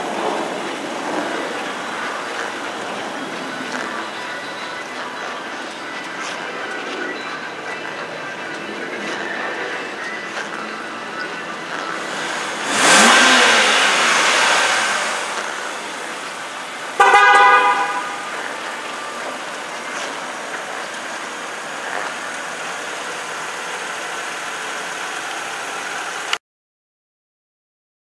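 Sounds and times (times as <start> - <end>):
car engine revving: 0.0 - 6.0, 9.8 - 26.3
car horn toot: 12.0 - 19.2.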